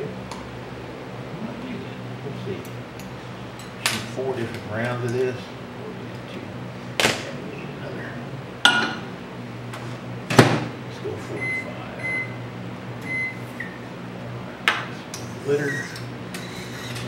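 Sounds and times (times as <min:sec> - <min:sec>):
microwave door closing thud: 0:10.3 - 0:10.7.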